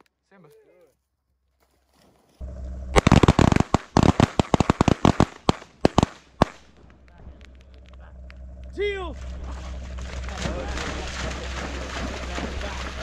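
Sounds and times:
shotgun fire: 2.9 - 7.0.

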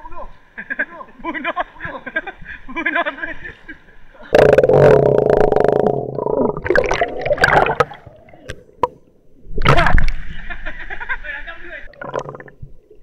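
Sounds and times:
water sloshing and gurgling: 4.4 - 10.5, 11.9 - 13.0
water splashes: 4.9 - 10.5.

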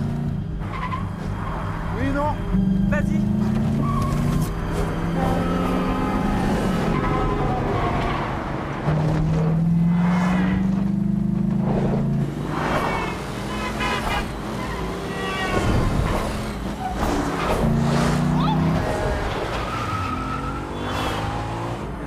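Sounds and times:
cars rushing past revving: 2.5 - 12.9, 15.8 - 22.0.

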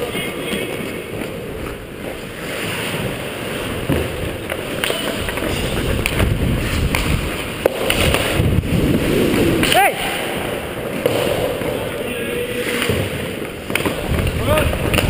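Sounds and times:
sharp hockey clacks: 0.0 - 8.7, 9.6 - 11.9, 12.5 - 15.0
ice skates scraping ice: 0.0 - 15.0
wind on microphone: 5.4 - 9.6.

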